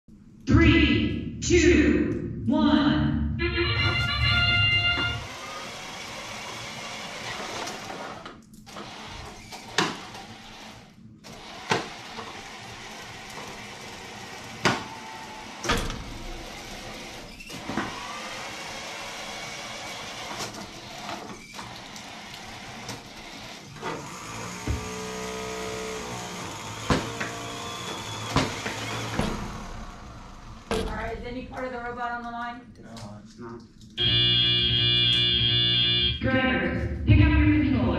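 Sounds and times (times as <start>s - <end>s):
robot motors whining: 4.1s - 30.7s
sharp knocks: 26.6s - 29.7s.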